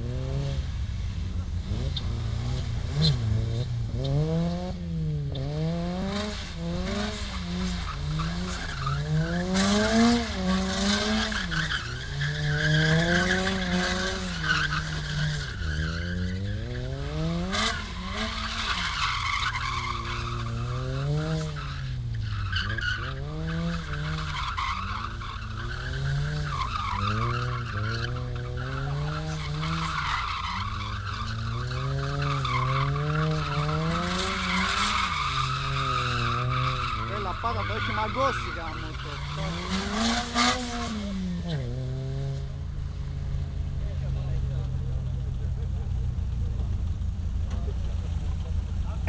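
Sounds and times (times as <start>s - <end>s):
car engine revving: 0.0s - 49.0s
tyres squealing: 7.9s - 40.8s.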